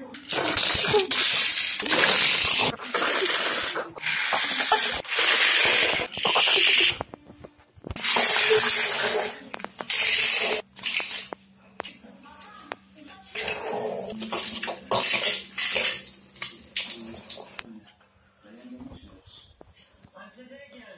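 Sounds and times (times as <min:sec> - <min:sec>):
loud hissing bursts: 0:00.4 - 0:06.9.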